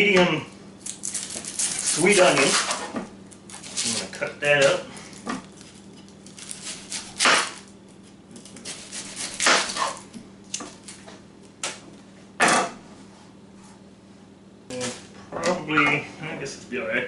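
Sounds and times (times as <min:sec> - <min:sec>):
knife slicing onion: 0:01.1 - 0:04.8, 0:05.5 - 0:10.9.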